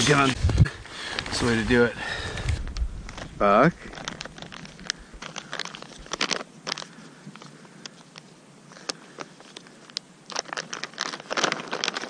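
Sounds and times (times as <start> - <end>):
snow crunching: 0.0 - 2.4.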